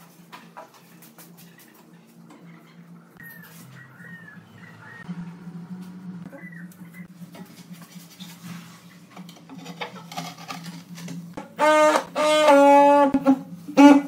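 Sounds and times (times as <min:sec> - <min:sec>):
tile vibrator buzzing: 0:09.5 - 0:14.0.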